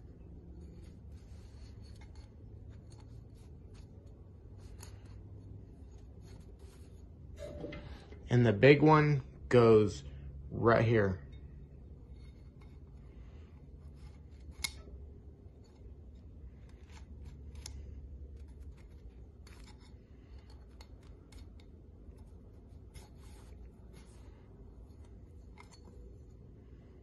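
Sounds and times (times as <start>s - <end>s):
small clicks and rubbing scrapes: 0.0s - 7.4s, 11.2s - 27.0s
steady low hum: 0.0s - 27.0s.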